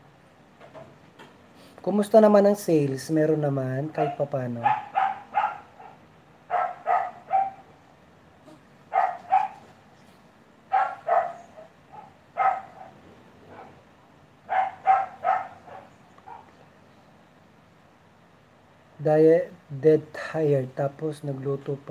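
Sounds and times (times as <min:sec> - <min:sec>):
dog barking: 0:04.0 - 0:07.8, 0:08.5 - 0:09.8, 0:10.7 - 0:13.8, 0:14.5 - 0:16.6.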